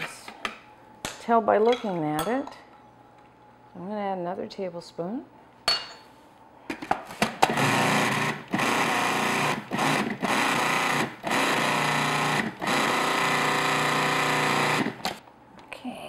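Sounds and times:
food processor motor pulsing: 0:07.4 - 0:15.2.

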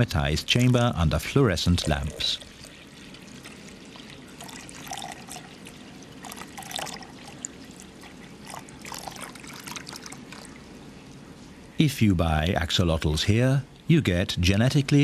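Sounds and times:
aquarium water trickling: 0:00.0 - 0:11.8
small water splashes: 0:01.8 - 0:10.8.

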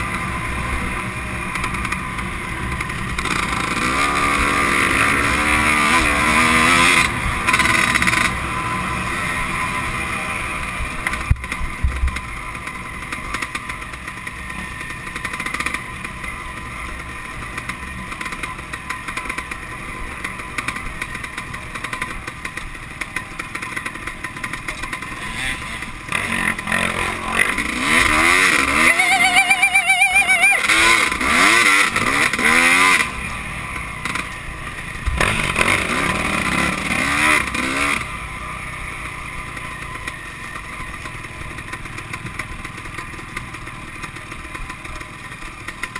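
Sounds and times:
dirt bike engine revving: 0:00.0 - 0:10.6, 0:24.5 - 0:38.3.

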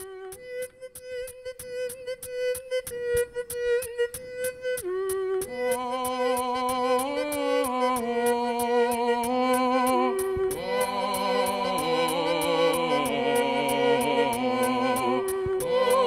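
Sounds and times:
ticking beat: 0:00.0 - 0:16.0.

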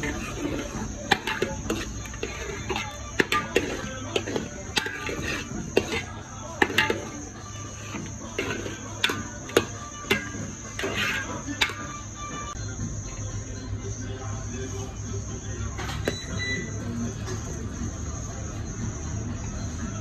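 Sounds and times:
spoon scraping a metal pot: 0:00.0 - 0:12.6.

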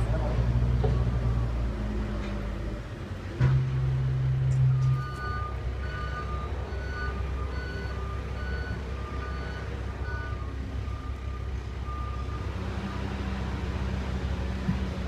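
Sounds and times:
two-tone electronic warning beeps: 0:04.6 - 0:12.4.

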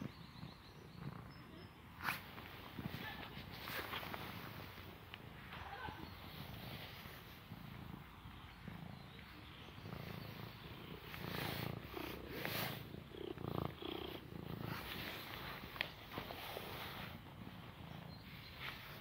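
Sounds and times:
cat purring: 0:00.0 - 0:19.0
rustling and brushing: 0:02.0 - 0:07.5, 0:11.0 - 0:17.6.

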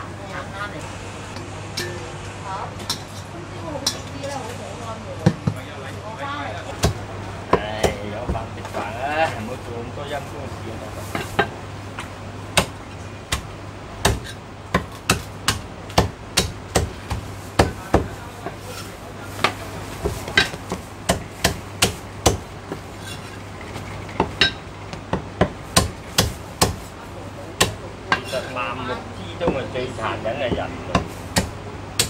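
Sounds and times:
cleaver chopping on wooden block: 0:14.0 - 0:18.1, 0:20.1 - 0:22.4, 0:30.5 - 0:32.0.

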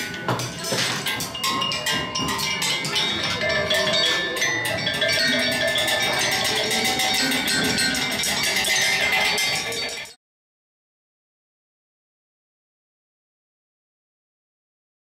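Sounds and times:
ringing metallic tones: 0:00.0 - 0:10.2
sticks clattering on metal percussion: 0:00.0 - 0:10.2.

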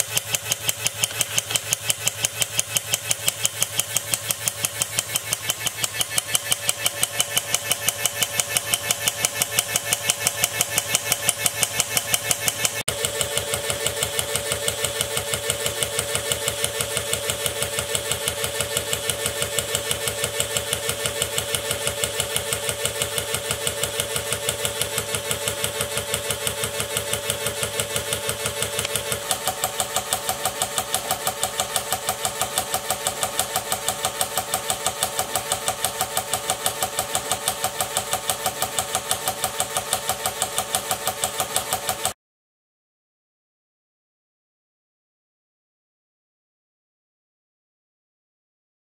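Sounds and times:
electric motor turning model engine: 0:00.0 - 0:42.2.

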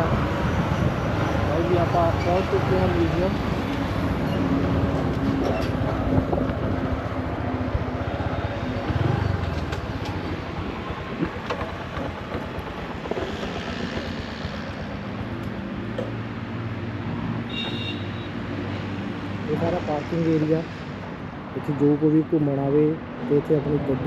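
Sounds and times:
broad rushing noise: 0:00.0 - 0:17.7.

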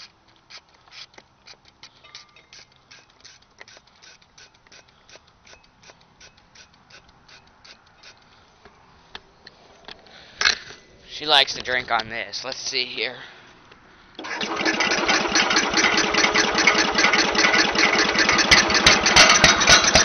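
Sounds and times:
spray bottle squirts: 0:00.0 - 0:08.3.

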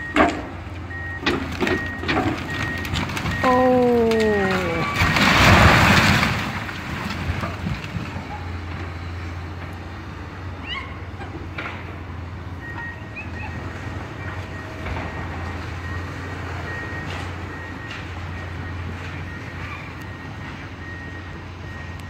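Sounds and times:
excavator diesel engine running: 0:00.0 - 0:22.0
brick wall crashing down: 0:04.1 - 0:07.9.

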